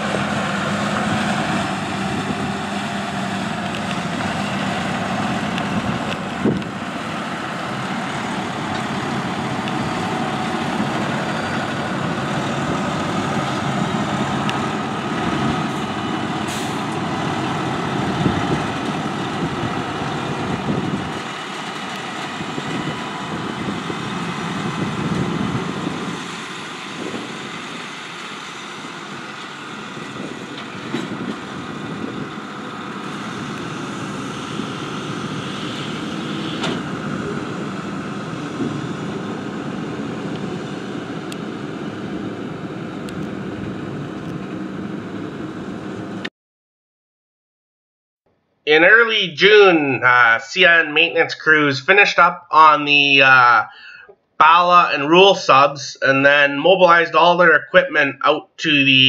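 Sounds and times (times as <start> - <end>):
diesel engine running: 0.0 - 46.3.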